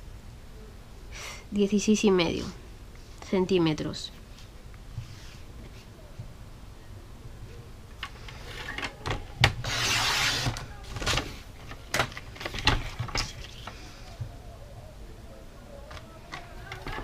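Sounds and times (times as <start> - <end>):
paper trimmer blade sliding: 9.6 - 10.6.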